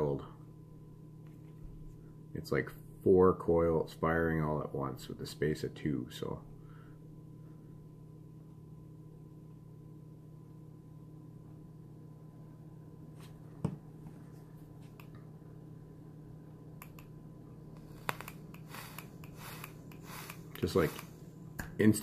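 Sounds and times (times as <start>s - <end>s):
steady low hum: 0.0s - 22.0s
small clicks from handling device: 17.8s - 21.1s.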